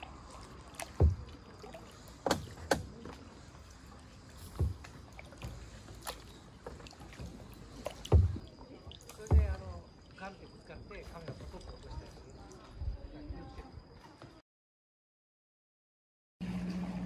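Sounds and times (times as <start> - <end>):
paddle splashing in water: 0.0 - 12.6
dull thump: 0.9 - 1.4, 4.4 - 5.7, 8.0 - 8.5, 9.2 - 9.9.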